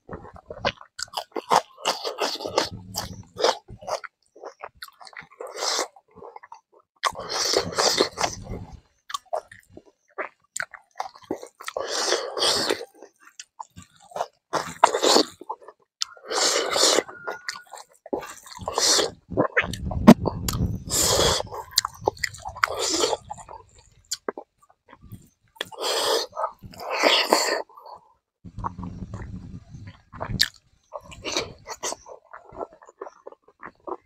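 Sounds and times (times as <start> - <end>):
wet chewing mouth sounds: 0.0 - 34.0
low rumble: 19.3 - 24.0, 28.5 - 31.1.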